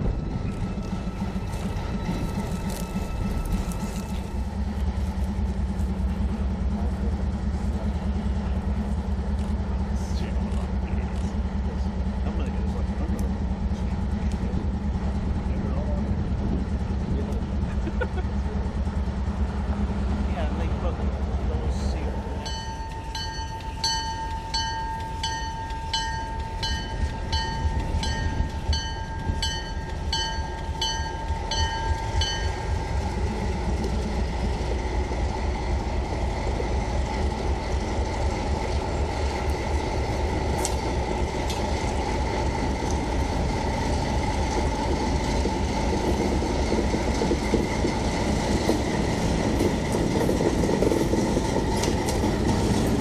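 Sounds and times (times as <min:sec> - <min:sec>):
locomotive diesel engine rumble: 0:00.0 - 0:53.0
bell ringing: 0:22.4 - 0:32.6.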